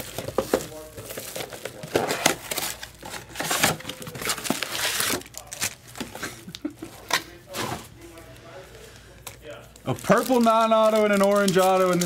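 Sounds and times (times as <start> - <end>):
card wrappers crinkling and tearing: 0.0 - 6.6, 9.2 - 12.0.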